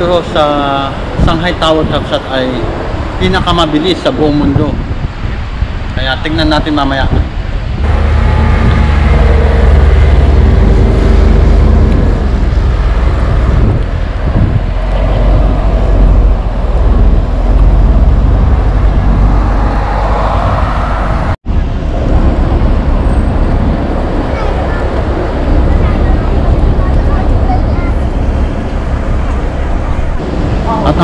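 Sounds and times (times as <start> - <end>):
road traffic: 0.0 - 31.0
bus driving past rumbling: 7.4 - 31.0.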